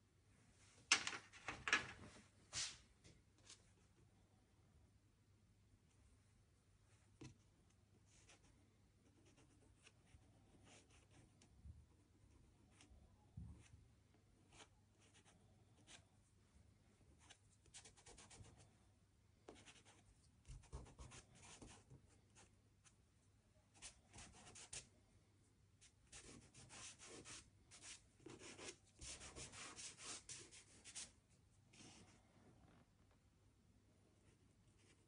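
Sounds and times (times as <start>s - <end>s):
pastel scratching and rubbing on paper: 26.1s - 31.1s.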